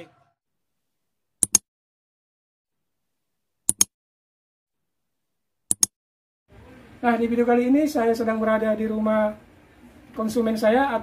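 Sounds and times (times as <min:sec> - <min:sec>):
mouse click sound effects: 0:01.4 - 0:01.6, 0:03.7 - 0:03.9, 0:05.7 - 0:05.9.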